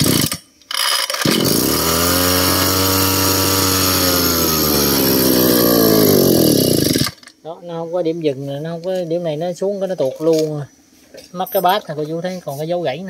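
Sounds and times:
brush cutter engine revving: 0:00.0 - 0:07.2.

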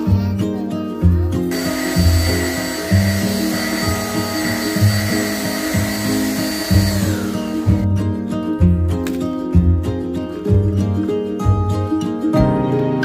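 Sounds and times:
guitar background music: 0:00.0 - 0:13.0
vacuum cleaner motor whining: 0:01.4 - 0:07.9.

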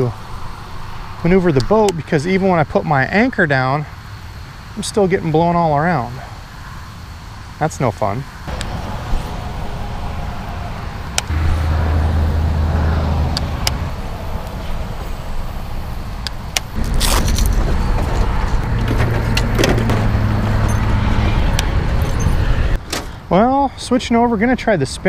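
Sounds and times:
wind rumbling on microphone: 0:08.4 - 0:22.8
fishing gear clattering: 0:16.8 - 0:23.1.

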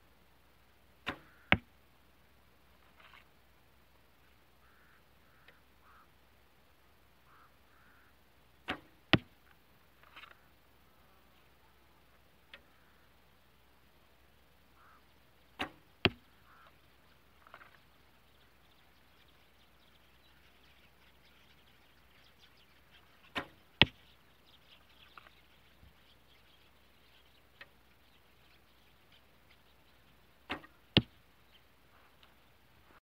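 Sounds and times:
arrow cracking into target: 0:01.0 - 0:01.7, 0:08.6 - 0:09.3, 0:15.6 - 0:16.2, 0:23.3 - 0:24.0, 0:30.5 - 0:31.1
bowstring snapping on release: 0:01.0 - 0:01.7, 0:08.7 - 0:09.0, 0:15.6 - 0:16.2, 0:30.5 - 0:31.1.

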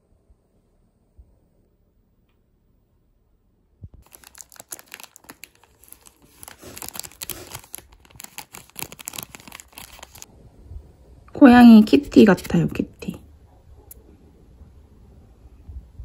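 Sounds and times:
plastic wrapper crinkling: 0:04.0 - 0:10.3.

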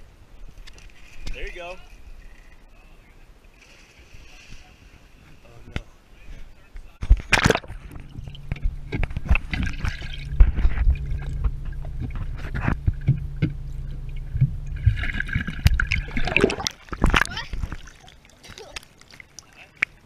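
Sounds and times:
muffled underwater sloshing: 0:00.4 - 0:20.0
steady low hum: 0:05.4 - 0:18.1
underwater bubbling: 0:07.2 - 0:20.0.

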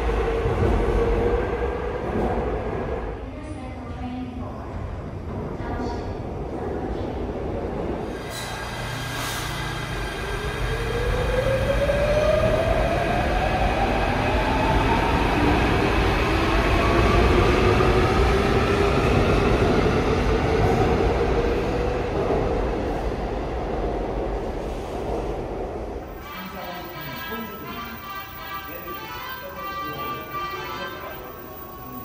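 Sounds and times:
low train rumble: 0:00.0 - 0:32.0
subway train motor whine: 0:26.1 - 0:32.0.

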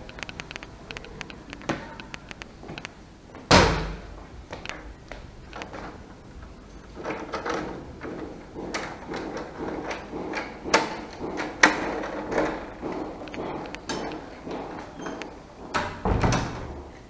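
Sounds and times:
wooden door pushed shut: 0:03.5 - 0:04.1, 0:15.7 - 0:16.9.

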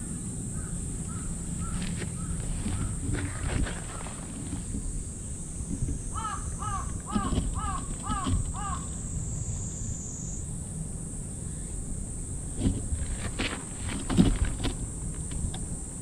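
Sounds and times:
crow cawing: 0:00.5 - 0:04.3, 0:06.0 - 0:09.0.

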